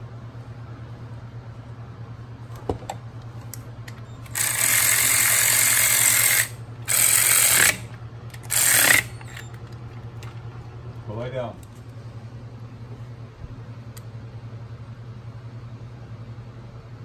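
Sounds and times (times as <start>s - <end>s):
steady low hum: 0.0s - 17.0s
power driver spinning: 4.2s - 10.0s.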